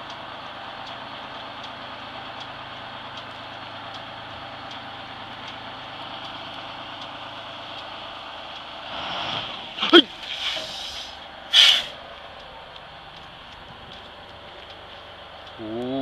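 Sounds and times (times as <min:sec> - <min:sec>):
faint regular tick: 0:00.0 - 0:08.8, 0:12.0 - 0:15.9
bus diesel engine running: 0:00.0 - 0:16.0.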